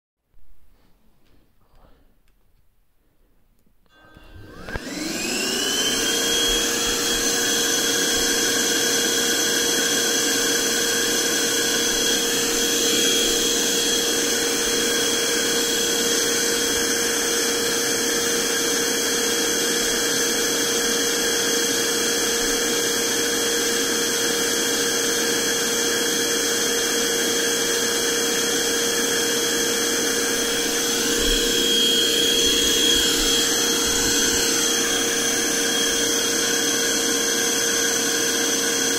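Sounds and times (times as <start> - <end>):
handheld vacuum cleaner whining: 3.9 - 38.9.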